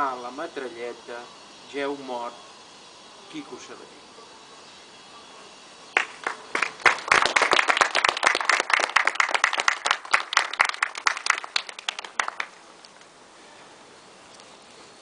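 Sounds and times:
people clapping: 0:05.9 - 0:12.6.

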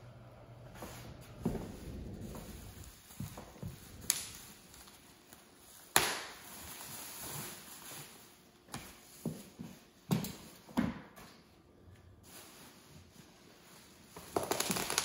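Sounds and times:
plastic packaging rustling: 0:01.7 - 0:08.7, 0:12.2 - 0:15.0.

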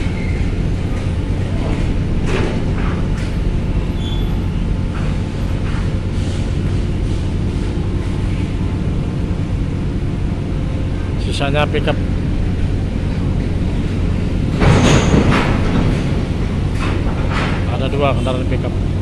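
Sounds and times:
ferry machinery drone: 0:00.0 - 0:19.0
car driving over metal ramp: 0:14.5 - 0:17.7.

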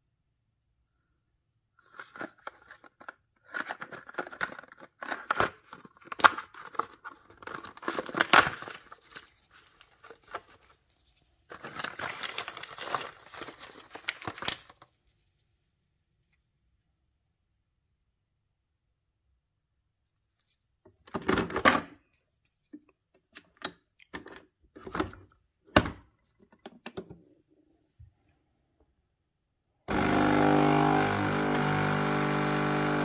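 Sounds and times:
cardboard tearing and crinkling: 0:02.0 - 0:10.7, 0:11.5 - 0:14.8.

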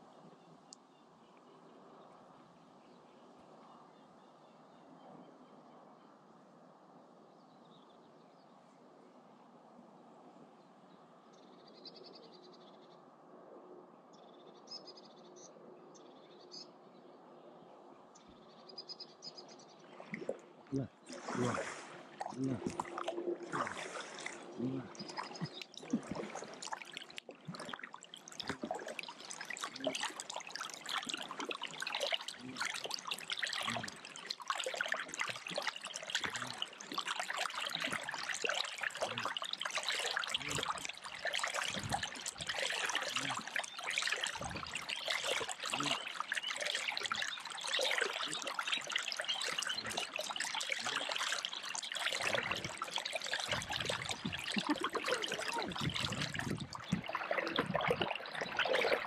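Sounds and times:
water splashing around kayak: 0:19.8 - 0:59.0
drips off paddle blades: 0:21.1 - 0:59.0.

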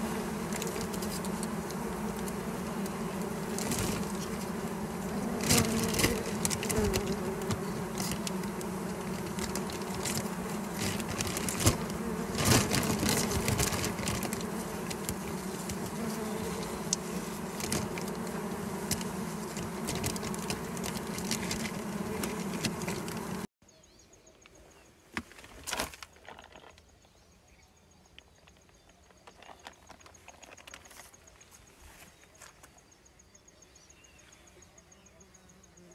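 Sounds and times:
honeybees buzzing: 0:00.0 - 0:23.5
plastic bag crackling: 0:05.4 - 0:16.0, 0:18.9 - 0:23.2.

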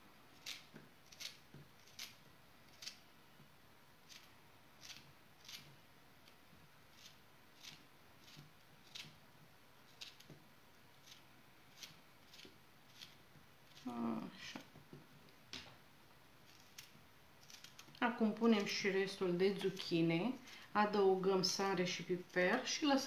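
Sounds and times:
knife cutting zucchini: 0:00.3 - 0:03.0, 0:04.0 - 0:09.2, 0:09.9 - 0:10.4, 0:11.0 - 0:14.9, 0:16.4 - 0:20.6.

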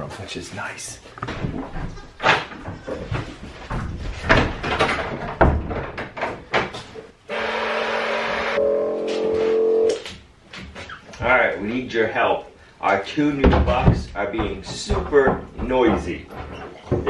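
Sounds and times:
goat hooves on wooden stand: 0:13.3 - 0:17.0.

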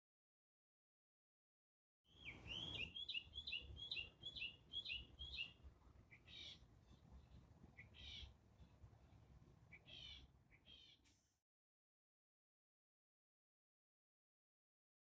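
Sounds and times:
whistled bird calls: 0:02.1 - 0:06.6
harsh bird calls: 0:02.1 - 0:07.0, 0:09.7 - 0:11.1.

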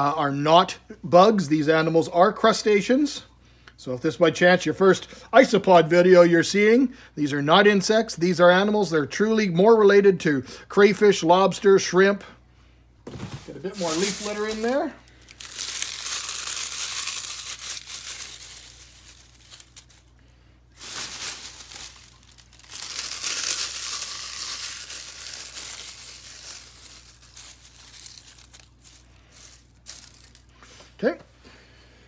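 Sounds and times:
dry leaves crumbled by hand: 0:13.1 - 0:30.6.

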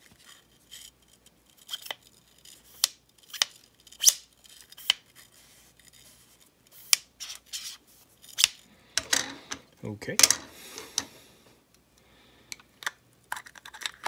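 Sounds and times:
light rubbing handling noise: 0:00.0 - 0:11.2.

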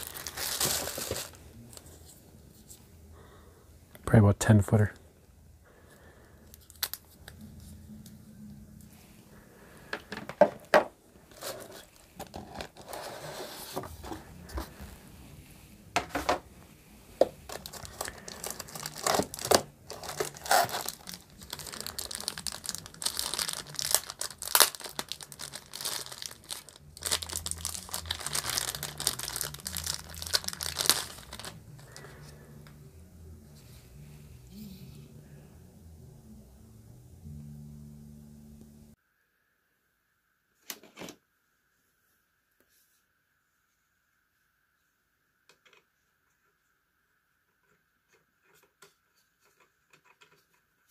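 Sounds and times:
plastic bags crinkling: 0:00.0 - 0:01.9, 0:06.5 - 0:07.2, 0:17.4 - 0:32.4.

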